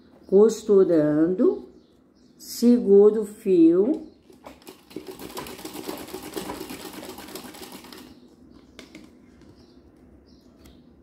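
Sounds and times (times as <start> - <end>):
sewing machine running fast: 4.5 - 8.1.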